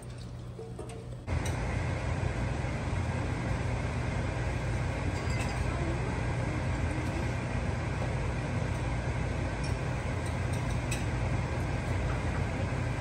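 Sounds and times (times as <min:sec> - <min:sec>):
range hood fan running: 0:00.0 - 0:13.0
faint clinks: 0:05.1 - 0:06.0.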